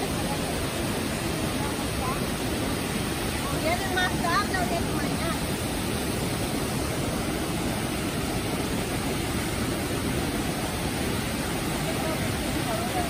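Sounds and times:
stream rushing over rocks: 0.0 - 13.0.

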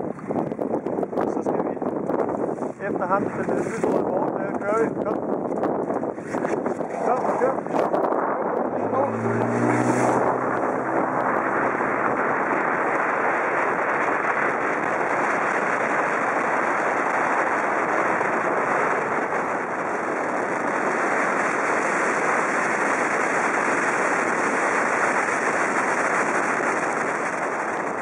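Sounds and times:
wind rushing: 0.0 - 23.2
water rushing past boat: 6.0 - 28.0.

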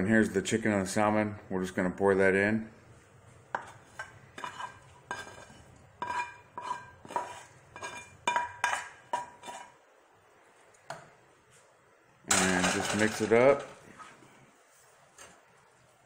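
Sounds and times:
spoon clinking on metal pans: 3.6 - 9.8, 12.3 - 13.7.

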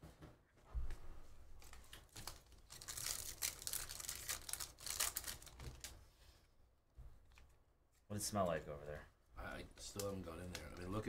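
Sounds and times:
wrapper tearing and crinkling: 1.6 - 6.0.

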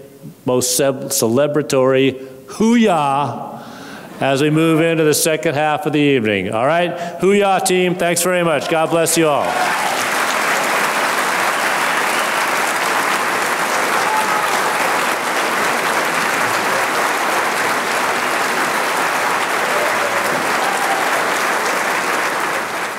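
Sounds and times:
large audience applauding: 9.2 - 22.9.

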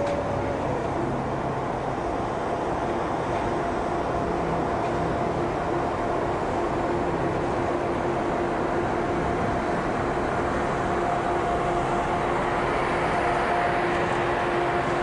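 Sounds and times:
electric locomotive hum: 0.0 - 15.0
train running gear noise: 0.0 - 15.0.

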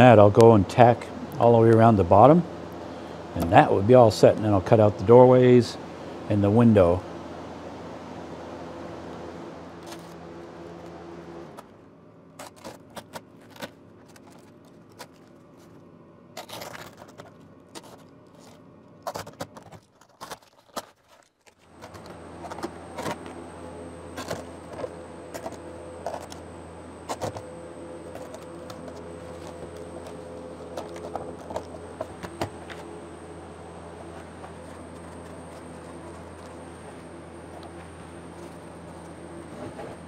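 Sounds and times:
steady low hum: 0.0 - 40.0
plastic sheet crinkling: 12.4 - 15.8, 16.4 - 23.4.

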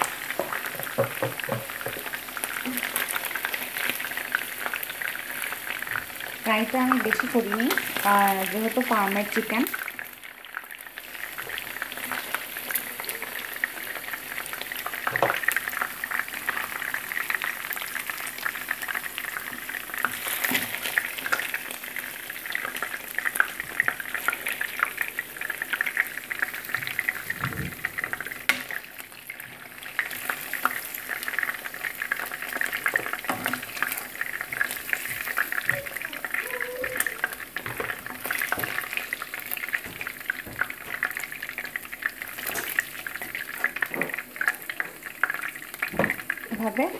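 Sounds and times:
chicken sizzling in hot oil: 0.0 - 46.9.

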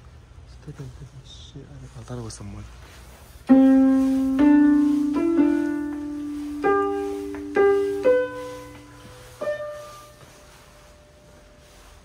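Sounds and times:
electronic piano notes: 3.5 - 10.2.

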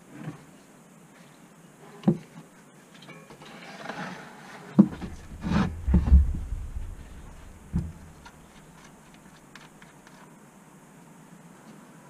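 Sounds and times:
bike wheel thumping on bench: 4.8 - 8.4
knock on wooden bench: 5.0 - 8.2.

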